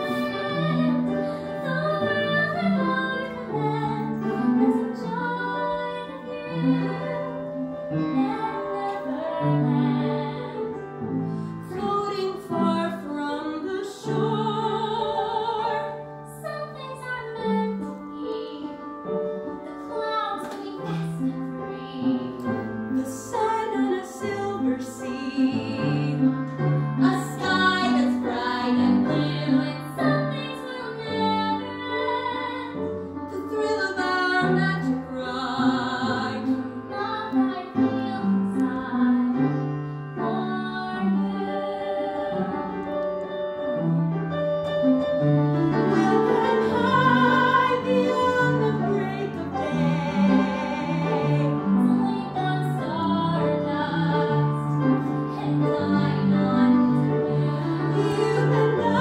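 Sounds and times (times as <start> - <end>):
woman singing a ballad: 0.0 - 10.8, 11.7 - 19.0, 19.6 - 26.4, 27.0 - 39.6
instrumental accompaniment: 0.0 - 59.0.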